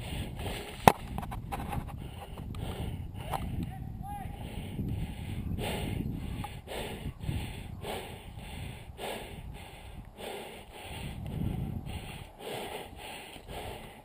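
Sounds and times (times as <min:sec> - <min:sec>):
person breathing hard: 0:00.0 - 0:00.8, 0:01.9 - 0:03.7, 0:04.3 - 0:14.0
wind rumble on microphone: 0:00.0 - 0:14.0.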